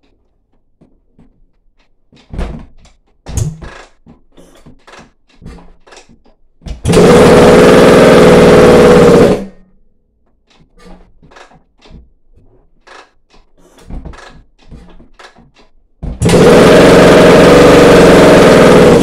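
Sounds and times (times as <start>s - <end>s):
kick-starter knocks and clicks: 0.0s - 7.0s, 10.2s - 16.4s
dirt bike engine running: 6.8s - 9.6s, 16.1s - 19.0s.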